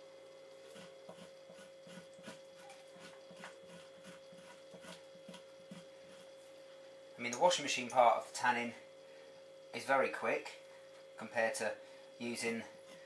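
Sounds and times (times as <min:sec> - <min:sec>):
faint steady hum: 0:00.0 - 0:13.0
knife scraping hide: 0:00.6 - 0:06.4.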